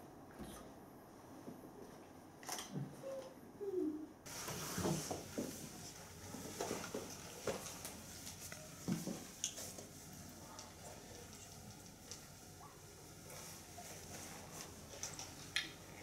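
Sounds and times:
room hiss: 4.2 - 16.0.

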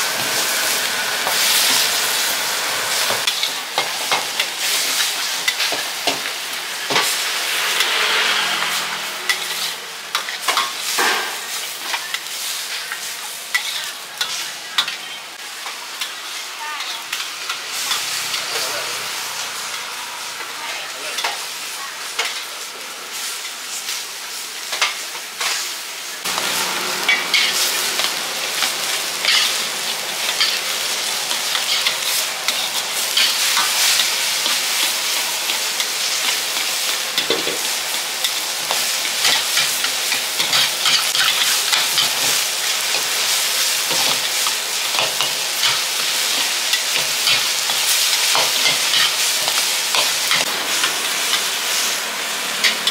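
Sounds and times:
noodles sizzling in a wok: 0.0 - 52.9
metal ladle scraping a pan: 6.9 - 11.2.

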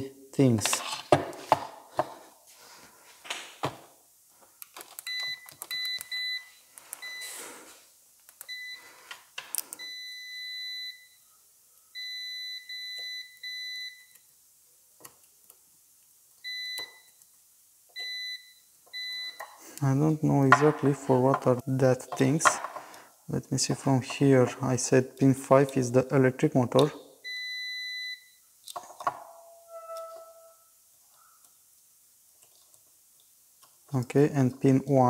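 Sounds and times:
multimeter continuity beeps: 5.0 - 7.3, 8.4 - 8.8, 9.8 - 11.2, 12.0 - 14.2, 16.4 - 17.2, 17.9 - 19.5, 27.2 - 28.4.

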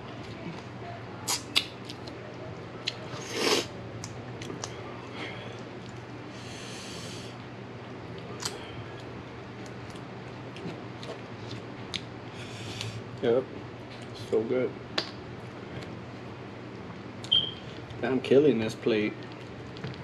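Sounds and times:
slurping sauce: 3.1 - 3.7.

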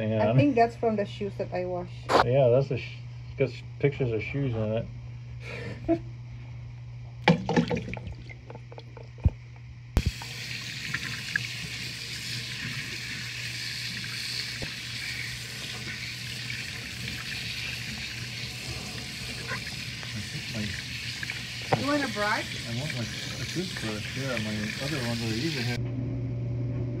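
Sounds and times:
faucet water splashing: 7.3 - 9.3, 10.0 - 25.8.

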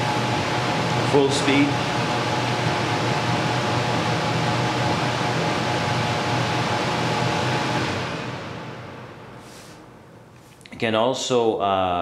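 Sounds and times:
air cleaner fan running: 0.0 - 12.0.

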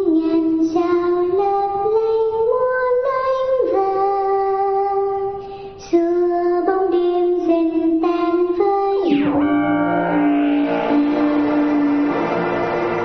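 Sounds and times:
woman singing a lullaby: 0.0 - 9.2.

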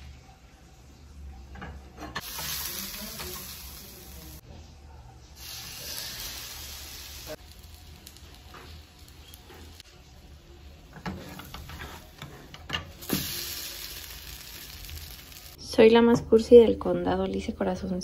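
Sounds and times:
bread frying: 1.8 - 4.4, 5.4 - 15.6
butter sizzling in frying pan: 2.2 - 4.4, 5.4 - 10.2, 10.8 - 15.6.

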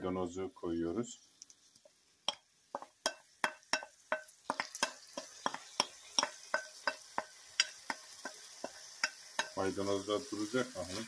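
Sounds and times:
faint sizzle: 0.0 - 11.0
spoon clicking against metal pan: 3.0 - 9.6.

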